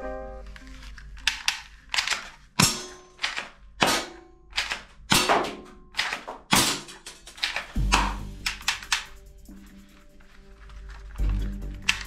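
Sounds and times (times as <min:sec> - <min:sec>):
plastic toy gun clicks: 0:01.2 - 0:09.2.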